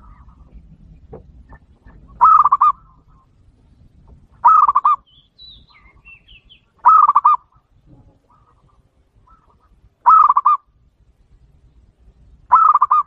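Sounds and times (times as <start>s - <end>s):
dove cooing: 1.5s - 3.3s, 4.4s - 5.1s, 6.8s - 7.6s, 8.2s - 10.7s, 12.5s - 13.0s
small bird chirping: 1.5s - 7.7s.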